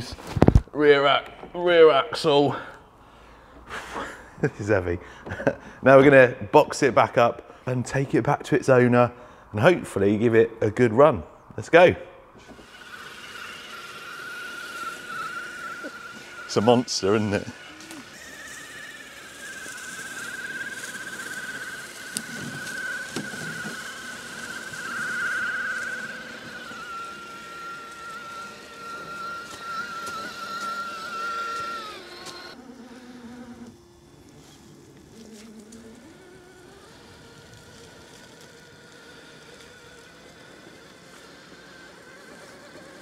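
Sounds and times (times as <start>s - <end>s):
electric motor whine: 12.3s - 43.0s.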